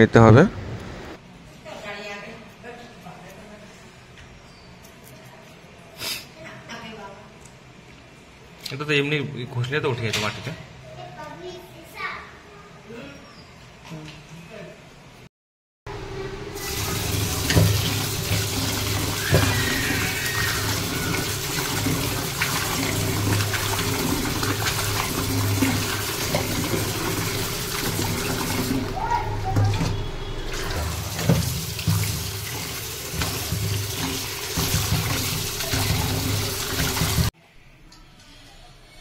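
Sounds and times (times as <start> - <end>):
tap water splashing into colander: 16.6 - 37.3
hand stirring food in water: 17.0 - 37.3.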